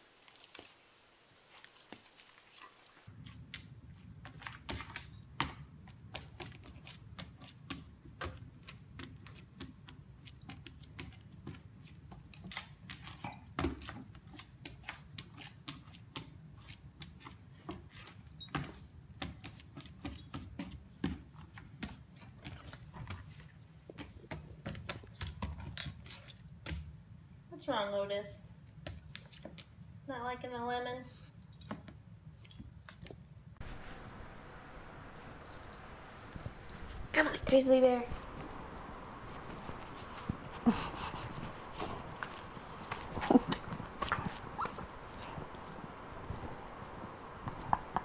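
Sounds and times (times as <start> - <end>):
collar jingling: 33.6 - 48.0
puppy claws clicking on hardwood floor: 36.4 - 48.0.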